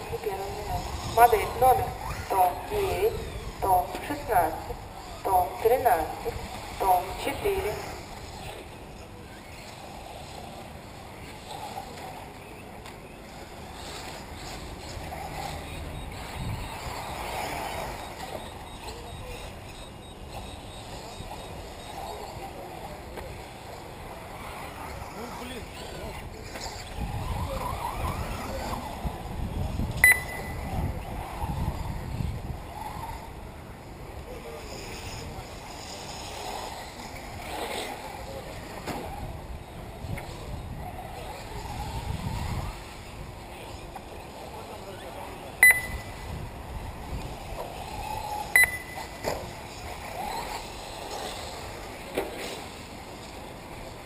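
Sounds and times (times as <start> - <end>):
wind rumble on microphone: 0.0 - 8.6, 13.8 - 18.0, 23.3 - 48.6
radio-controlled cars running: 0.0 - 54.0
short high beep: 30.0 - 30.7, 45.6 - 46.2, 48.6 - 49.2.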